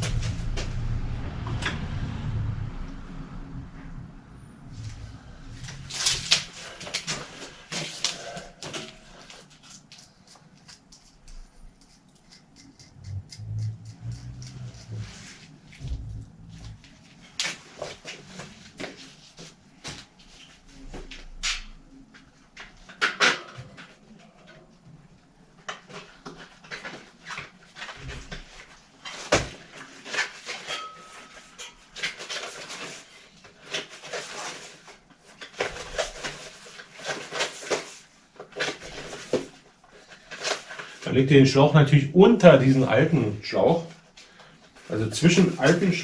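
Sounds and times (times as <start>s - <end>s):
rubber tyre rubbing and rustling: 3.2s - 10.2s, 10.8s - 21.4s.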